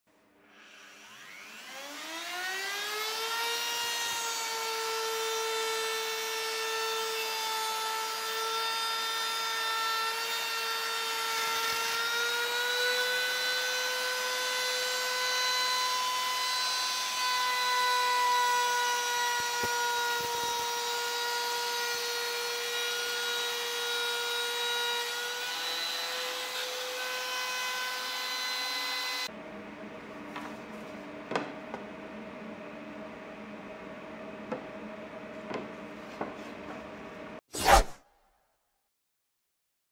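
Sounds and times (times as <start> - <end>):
electric router whining: 0.6 - 29.3.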